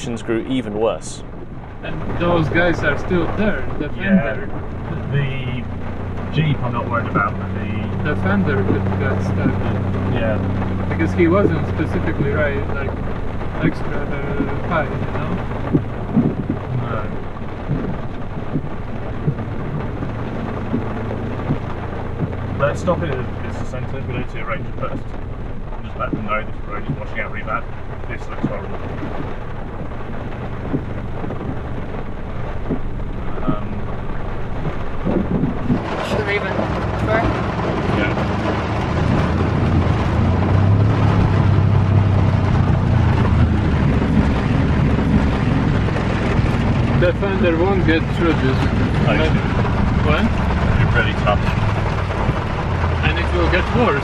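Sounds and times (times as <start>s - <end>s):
rain on vehicle body: 0.0s - 54.0s
steady rushing noise: 0.0s - 54.0s
truck engine low rumble: 0.0s - 54.0s.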